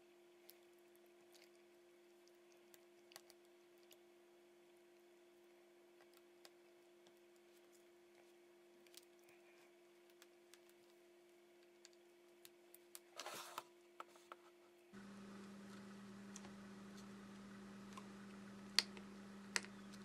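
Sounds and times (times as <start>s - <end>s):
faint steady hum: 0.0s - 20.0s
charging cable plugged in: 15.0s - 20.0s.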